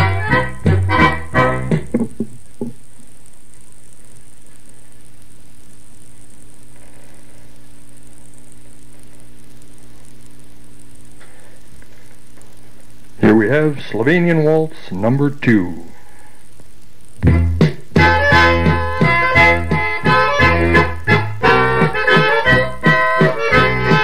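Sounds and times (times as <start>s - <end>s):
accordion tune: 0.0s - 2.0s, 17.3s - 24.0s
hum with hiss: 0.0s - 24.0s.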